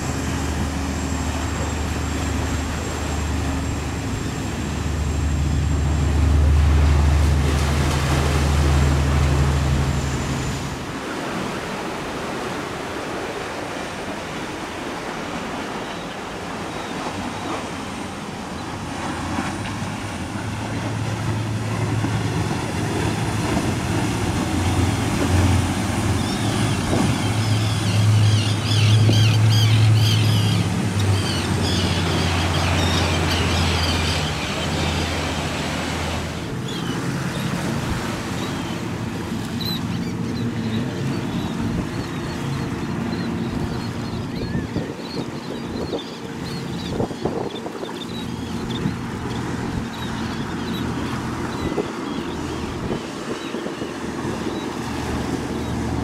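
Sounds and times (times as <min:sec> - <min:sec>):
boat engines droning: 0:00.0 - 0:56.0
waves rushing: 0:00.0 - 0:56.0
wind on microphone: 0:43.0 - 0:49.8, 0:51.2 - 0:56.0.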